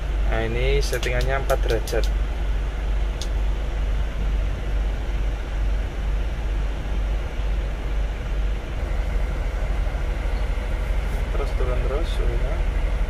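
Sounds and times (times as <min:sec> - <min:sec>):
air conditioning hiss: 0:00.0 - 0:13.0
truck engine running: 0:00.0 - 0:13.0.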